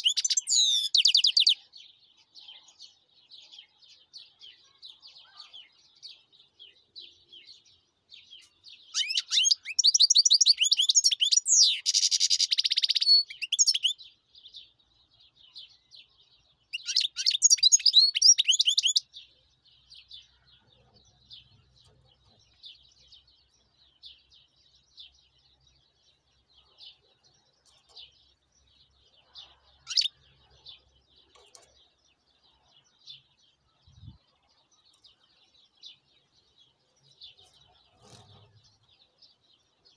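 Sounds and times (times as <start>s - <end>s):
goldfinch singing: 0.0s - 1.6s, 5.6s - 14.1s, 16.7s - 19.1s, 26.8s - 39.9s.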